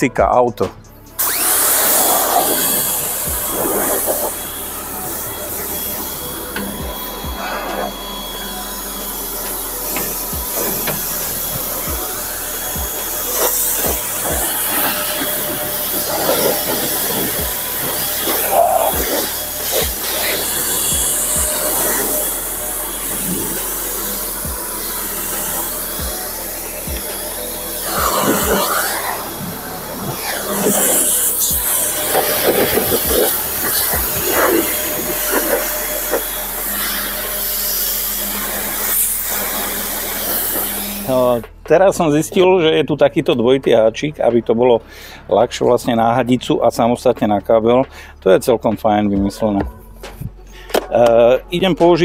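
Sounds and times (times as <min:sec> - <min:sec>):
electric pressure washer running: 0:01.1 - 0:41.6
water jet hissing on car: 0:01.2 - 0:41.4
pump motor hum: 0:01.2 - 0:41.6.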